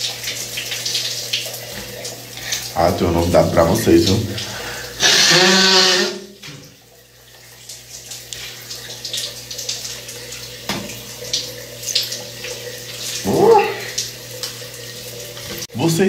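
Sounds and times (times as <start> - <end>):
shower water splashing: 0.0 - 16.0.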